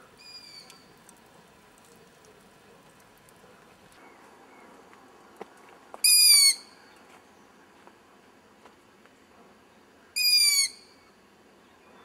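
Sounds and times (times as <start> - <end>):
owl chick screaming: 6.1 - 6.6, 10.2 - 10.8.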